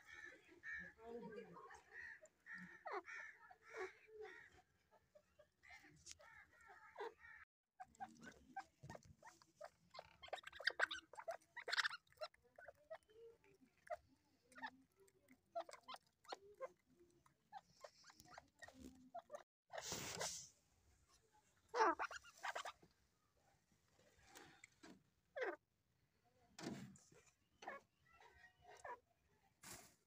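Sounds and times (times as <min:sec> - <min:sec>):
partridge calling and clucking: 0:05.6 - 0:13.0.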